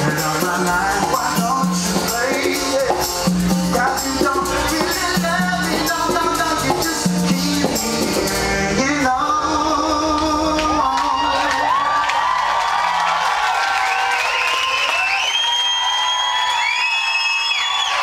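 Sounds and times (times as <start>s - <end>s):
rattling percussion: 0.0s - 8.5s
acoustic guitars: 0.0s - 10.8s
man singing: 0.0s - 11.9s.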